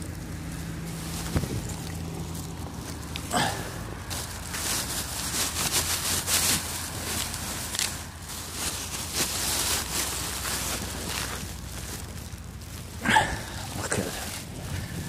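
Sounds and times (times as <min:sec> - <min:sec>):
low steady hum: 0:00.0 - 0:15.0
rustling: 0:00.0 - 0:15.0.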